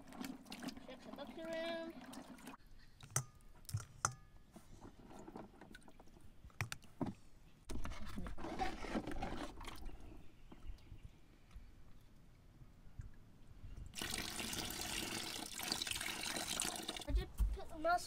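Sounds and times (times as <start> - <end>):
water sloshing: 0.0 - 7.3.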